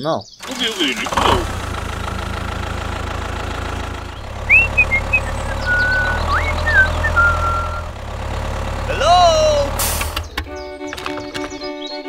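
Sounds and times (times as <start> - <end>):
tractor engine idling: 0.4 - 11.9
high whistled chirps: 4.4 - 7.9.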